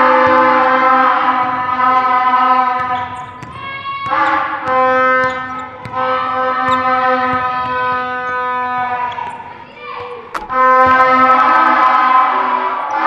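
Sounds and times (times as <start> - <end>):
basketball bouncing on hardwood: 0.1 - 11.8
loud horn-like tone: 4.0 - 9.5, 10.3 - 13.0.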